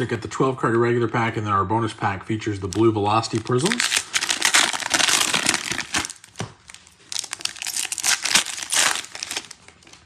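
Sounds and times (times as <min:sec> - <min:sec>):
foil wrapper crinkling and tearing: 0:02.6 - 0:10.0.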